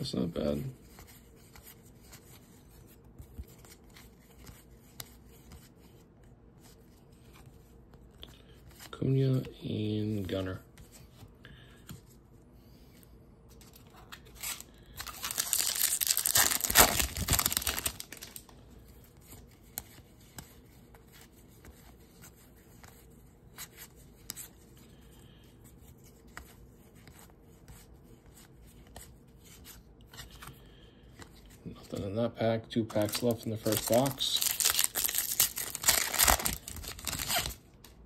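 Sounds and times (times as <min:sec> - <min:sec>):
wrapper tearing and crinkling: 0:14.4 - 0:18.5, 0:33.0 - 0:37.6.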